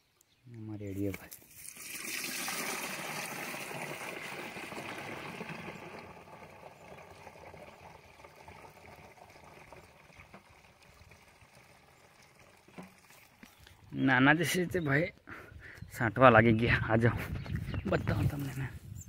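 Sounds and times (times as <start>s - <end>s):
liquid pouring into tank: 1.5s - 13.7s.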